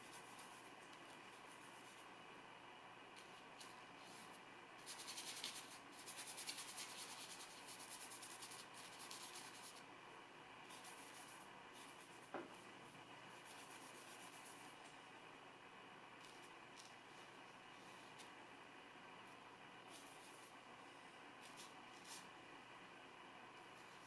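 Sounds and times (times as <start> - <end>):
brush scratching paint: 0.0 - 2.1, 3.2 - 9.8, 10.7 - 12.3, 13.3 - 14.8, 19.9 - 20.6, 21.4 - 22.4.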